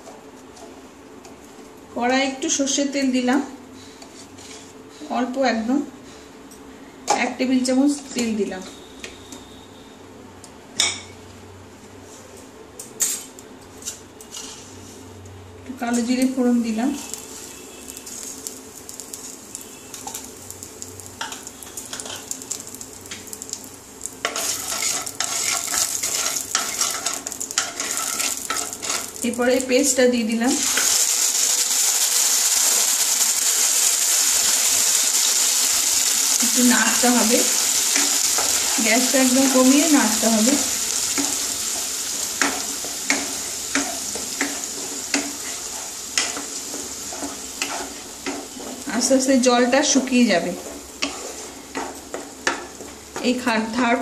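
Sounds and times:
wooden spatula scraping pan: 4.0 - 4.8, 41.2 - 49.1, 50.0 - 53.0
seeds sizzling in hot oil: 16.0 - 53.8.

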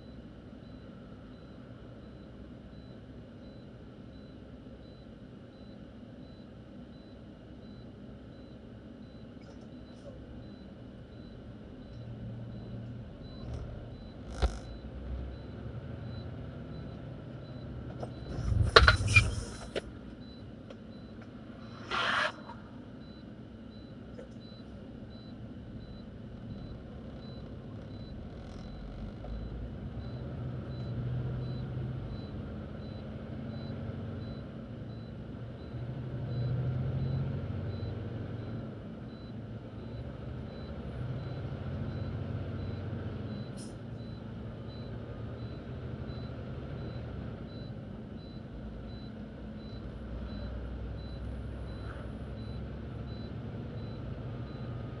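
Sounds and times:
truck engine running: 9.8 - 55.0
road noise: 11.6 - 55.0.

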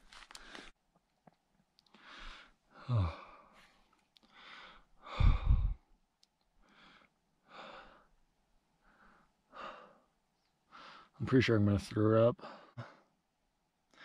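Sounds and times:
heavy laboured breathing and sighs: 1.9 - 5.9, 6.6 - 8.2, 8.8 - 11.2, 12.4 - 13.2.

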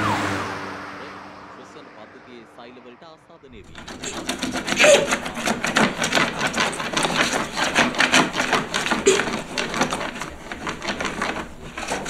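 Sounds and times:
scribbling on a wall: 3.5 - 12.0.

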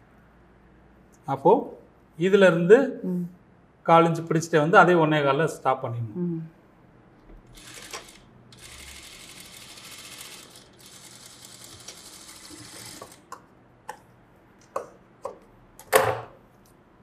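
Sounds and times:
sewing machine running: 7.5 - 13.3.

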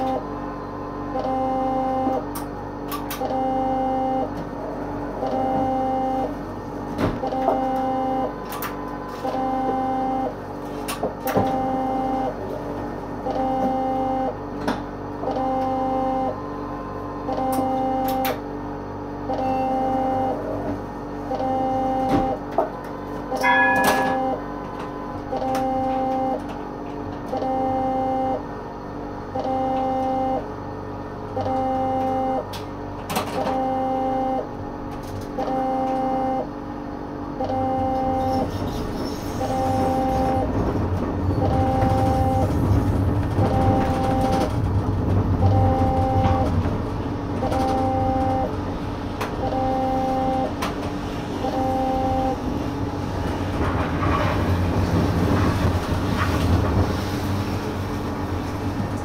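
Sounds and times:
electronic warning beeps: 1.1 - 2.2, 3.2 - 4.3, 5.2 - 6.3, 7.2 - 8.4, 9.1 - 10.4, 11.3 - 12.4, 13.2 - 14.4, 15.2 - 16.4, 17.3 - 18.4, 19.3 - 20.4, 21.3 - 22.4, 23.3 - 26.4, 27.3 - 28.4, 29.4 - 30.4, 31.4 - 32.5, 33.4 - 34.5, 35.4 - 36.5, 37.4 - 38.6, 39.4 - 40.5, 41.3 - 42.6, 43.4 - 44.6, 45.4 - 46.6, 47.4 - 48.5, 49.4 - 50.6, 51.4 - 52.4
short high chime: 23.4 - 24.4.

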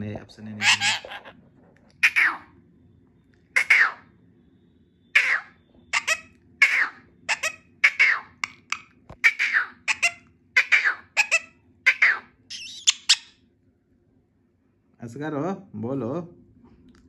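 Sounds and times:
parakeet sharp calls: 0.5 - 1.3, 2.0 - 2.5, 3.6 - 4.1, 5.2 - 13.4.

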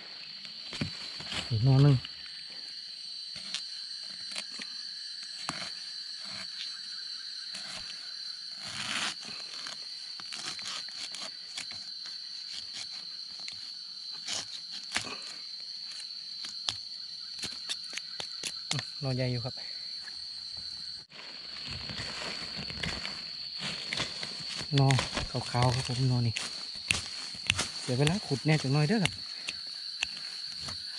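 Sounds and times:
high-pitched insect drone: 0.0 - 30.9
dry leaves and twigs crunching: 0.2 - 2.5, 20.0 - 30.9.

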